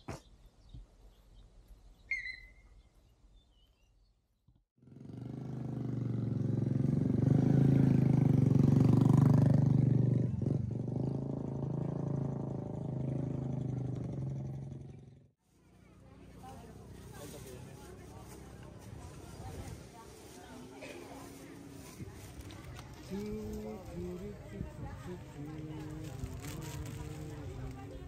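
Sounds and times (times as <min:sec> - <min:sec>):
high chirp: 0:02.1 - 0:02.9
motorcycle engine humming: 0:04.8 - 0:28.0.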